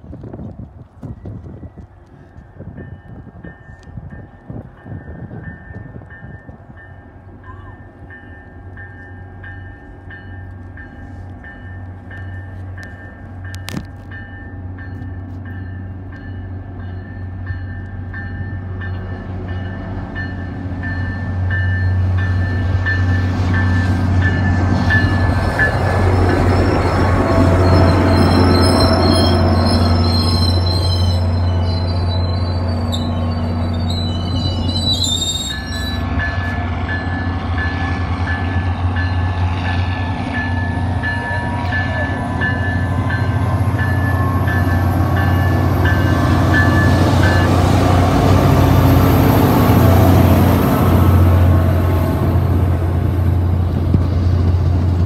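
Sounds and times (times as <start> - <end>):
diesel train engine rumble: 0.0 - 55.0
wheels squealing on rails: 19.1 - 50.9.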